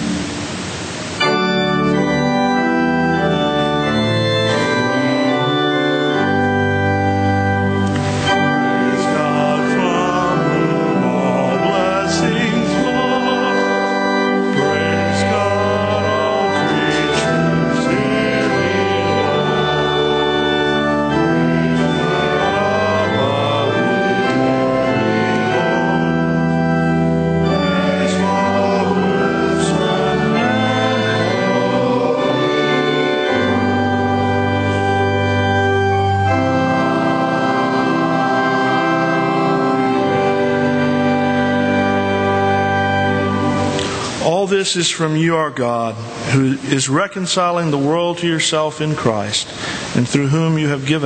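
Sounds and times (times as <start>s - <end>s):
organ playing slow chords: 0.0s - 51.0s.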